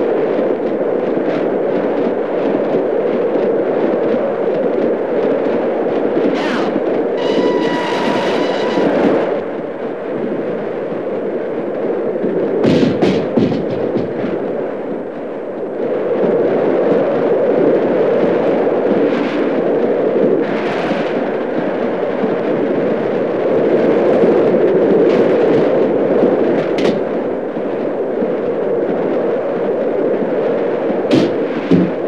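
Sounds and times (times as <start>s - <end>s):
steam train rushing roar: 5.6s - 11.0s
sharp cracks: 31.1s - 32.0s.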